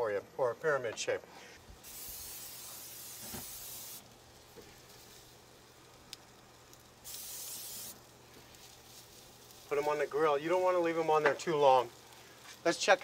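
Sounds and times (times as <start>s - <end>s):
aerosol spray can hissing: 1.8s - 4.1s, 7.0s - 8.0s.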